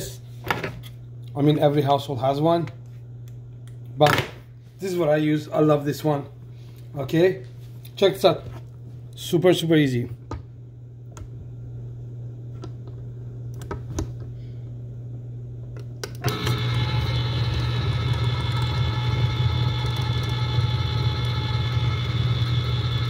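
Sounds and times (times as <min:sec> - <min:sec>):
can opener motor whirring: 0:16.1 - 0:23.0.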